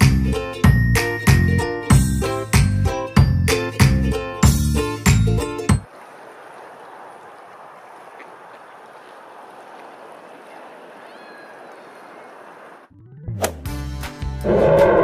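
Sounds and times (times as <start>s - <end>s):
cheerful music: 0.0s - 5.8s, 13.4s - 14.4s
wind: 3.8s - 12.9s
moving water: 4.8s - 12.9s.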